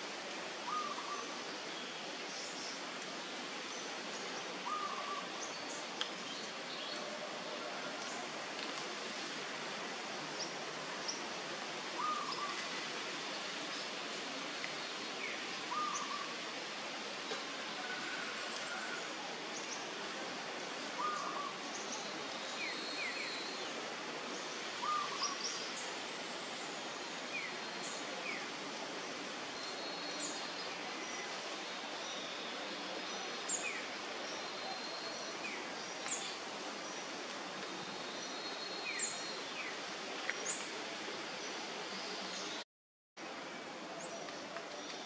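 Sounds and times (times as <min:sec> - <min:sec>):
steady outdoor hiss: 0:00.0 - 0:42.6, 0:43.2 - 0:45.0.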